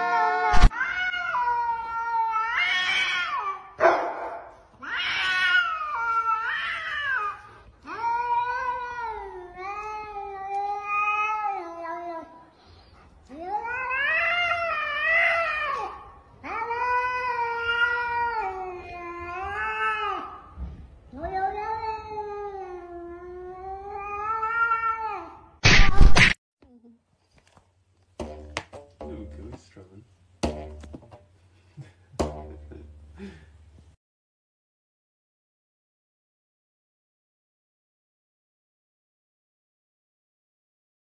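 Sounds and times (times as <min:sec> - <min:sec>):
cat yowling: 0:00.0 - 0:03.9, 0:04.8 - 0:12.3, 0:13.4 - 0:20.4, 0:21.2 - 0:25.6.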